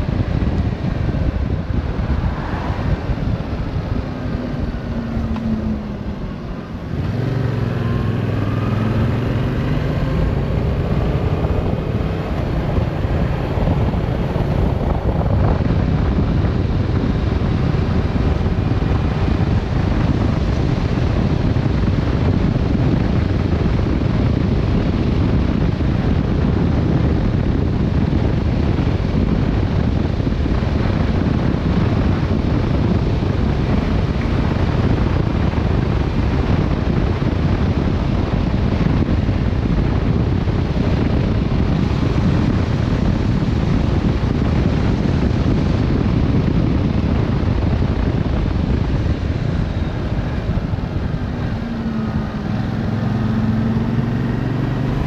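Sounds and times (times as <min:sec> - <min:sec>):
motorcycle engine: 0:00.0 - 0:55.0
wind rush on microphone: 0:00.0 - 0:55.0.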